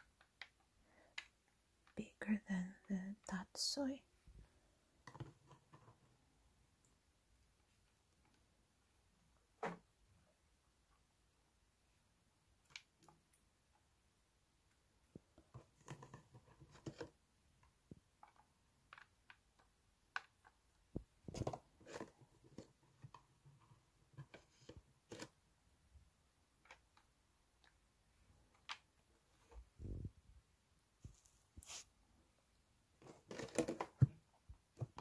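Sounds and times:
plastic containers clicking and tapping: 17.9 - 23.4, 33.0 - 35.0.

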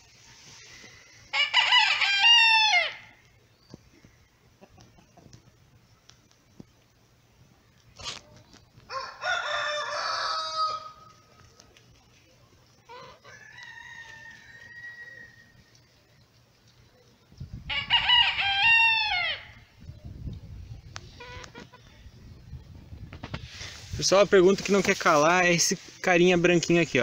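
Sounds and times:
roosters crowing: 0.7 - 3.2, 8.8 - 11.4, 12.8 - 16.0, 17.6 - 19.8.

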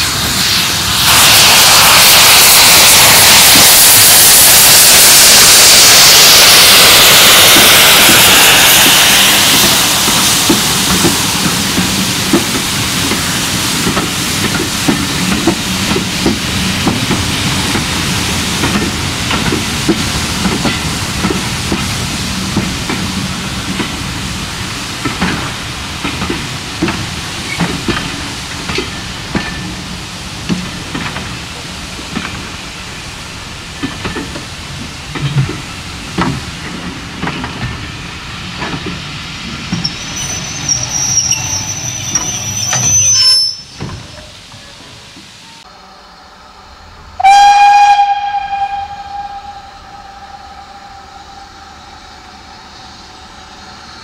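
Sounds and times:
train wheels clicking over rail joints: 0.0 - 45.4
hiss: 0.0 - 54.0
high thin squeal: 39.8 - 44.4.

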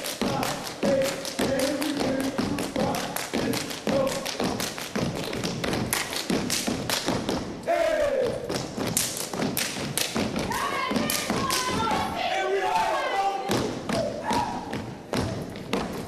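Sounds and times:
hand claps: 0.0 - 7.2, 8.5 - 12.1
rhythmic foot stomps: 0.0 - 16.0
people shouting: 10.5 - 14.8.

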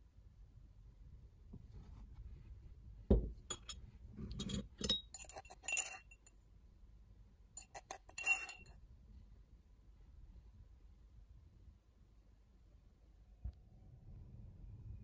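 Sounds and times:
metal spoon scraping cups: 4.3 - 6.2, 7.6 - 8.7.

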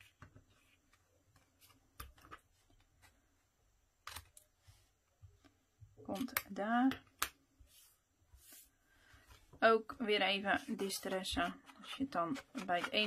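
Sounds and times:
scissors snipping paper: 10.9 - 13.0.

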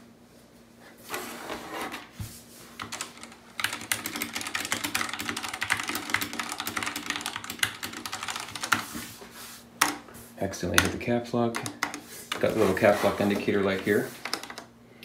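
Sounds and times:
fast typing on mechanical keyboard: 2.8 - 8.9, 13.5 - 14.7.

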